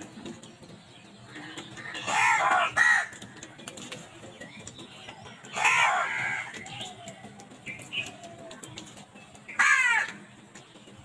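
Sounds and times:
crows cawing: 1.8 - 3.2, 5.5 - 6.6, 9.5 - 10.3.

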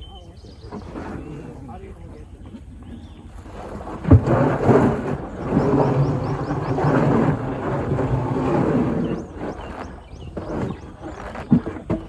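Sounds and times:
elephant roaring: 3.4 - 11.4.

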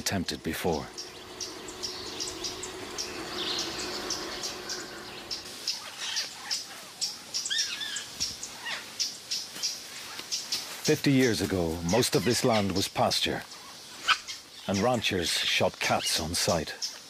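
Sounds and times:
lower sliding calls: 0.0 - 6.6
faint steady hum: 0.0 - 8.6.

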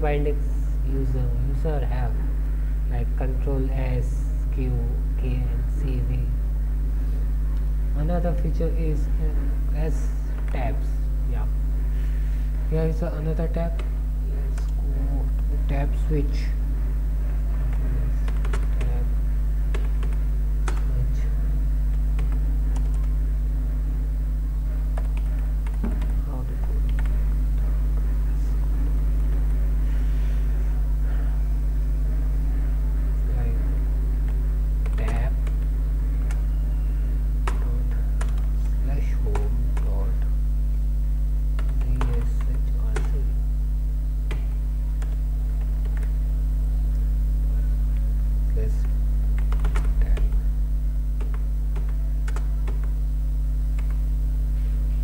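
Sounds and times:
low electrical hum: 0.0 - 55.0
computer keyboard typing: 17.6 - 19.0, 19.6 - 21.3, 21.9 - 23.2, 24.8 - 27.4, 34.2 - 36.5, 37.4 - 40.3, 41.6 - 43.2, 44.2 - 46.2, 48.7 - 50.4, 51.2 - 53.0, 53.7 - 54.1.

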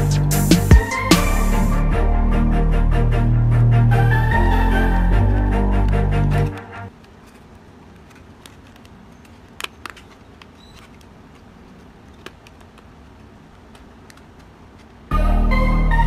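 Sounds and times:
steady low hiss: 0.0 - 16.0
cardboard clicks and taps: 6.5 - 15.0.

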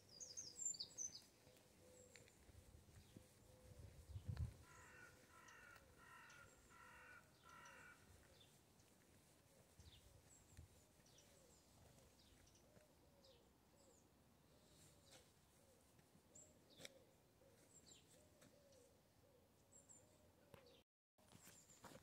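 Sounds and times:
small birds chirping: 0.0 - 15.3
bird calling: 4.6 - 8.5.

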